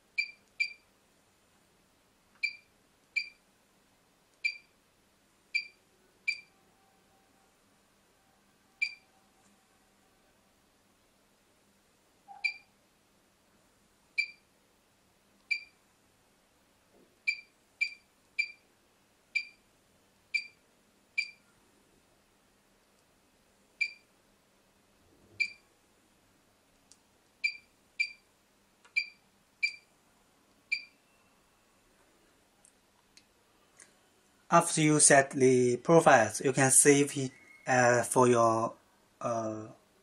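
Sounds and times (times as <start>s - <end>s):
short high-pitched beeps: 5.6s - 6.5s, 12.3s - 12.7s, 23.8s - 24.0s, 30.7s - 31.6s.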